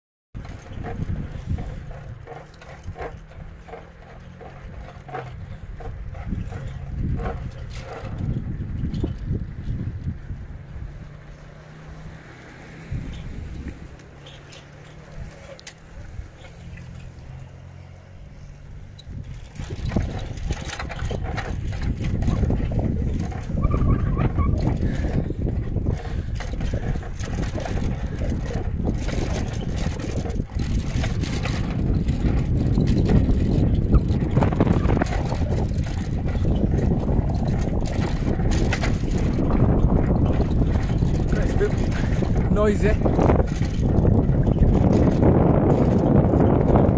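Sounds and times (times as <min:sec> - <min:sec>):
wind buffeting microphone: 0:00.4 - 0:46.9.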